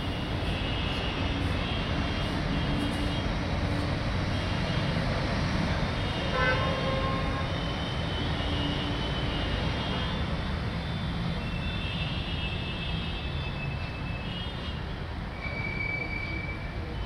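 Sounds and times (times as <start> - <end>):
city traffic rumble: 0.0 - 17.0
distant vehicle horn: 6.1 - 10.2.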